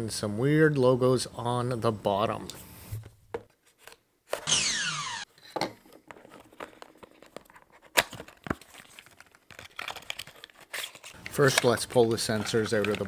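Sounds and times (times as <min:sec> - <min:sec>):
cardboard rustling: 0:05.8 - 0:13.0.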